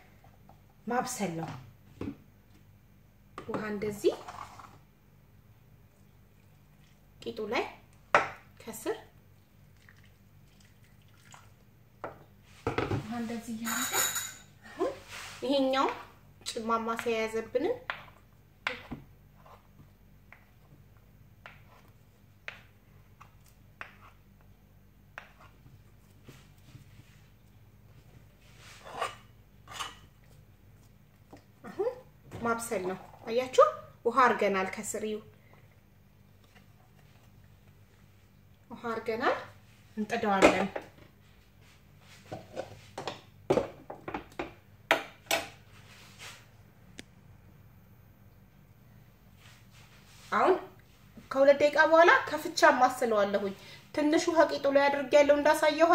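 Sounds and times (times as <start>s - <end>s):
spoons scraping dough in pot: 28.4s - 30.1s.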